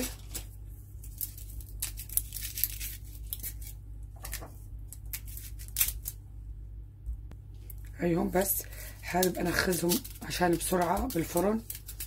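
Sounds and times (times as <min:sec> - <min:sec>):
dry onion skin crackling: 0:00.0 - 0:06.2, 0:08.8 - 0:12.0.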